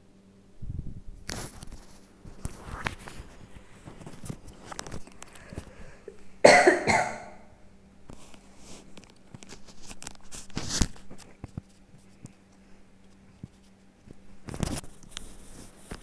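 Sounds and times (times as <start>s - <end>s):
person coughing: 6.4s - 7.5s.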